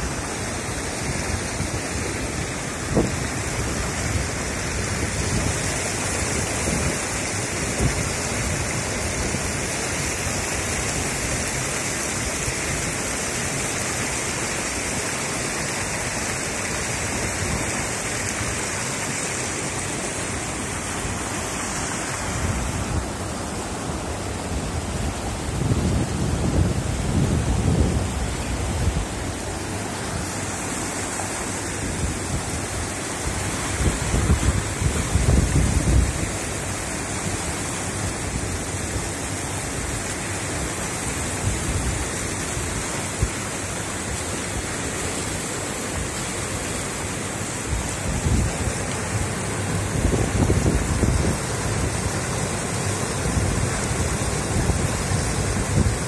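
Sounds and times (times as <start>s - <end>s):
fast churning river water: 0.0s - 56.0s
wind buffeting microphone: 33.7s - 36.4s, 48.0s - 56.0s.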